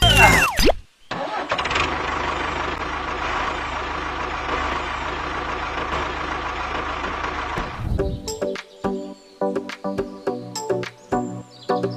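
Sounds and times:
tractor diesel engine idling: 0:01.2 - 0:08.4.

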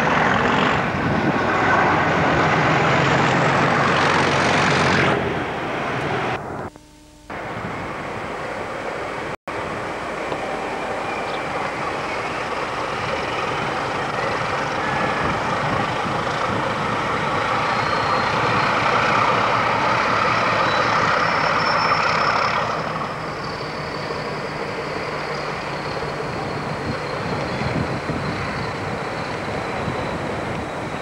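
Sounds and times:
diesel train engine running: 0:00.0 - 0:06.7, 0:07.3 - 0:31.0
faint high whine: 0:06.3 - 0:15.3.

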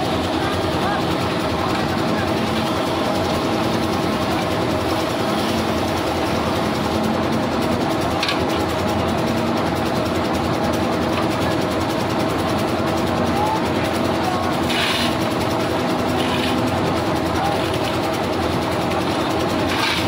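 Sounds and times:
concrete mixer engine droning: 0:00.0 - 0:20.0
shovel scraping crushed stone: 0:14.6 - 0:15.2, 0:19.7 - 0:20.0.

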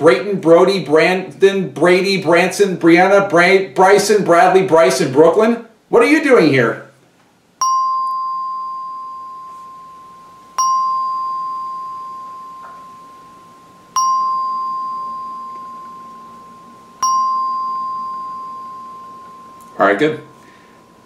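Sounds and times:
bell-like chime ringing: 0:07.6 - 0:21.0.

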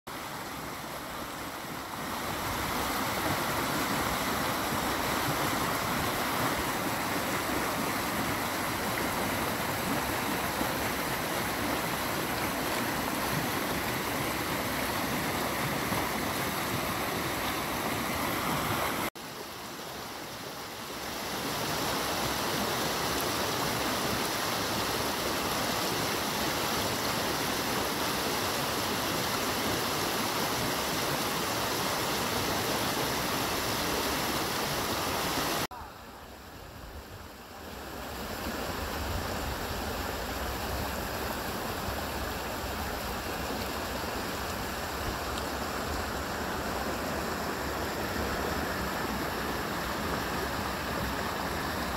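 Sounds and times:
water rushing over rocks: 0:00.1 - 0:36.6, 0:37.6 - 0:51.9.

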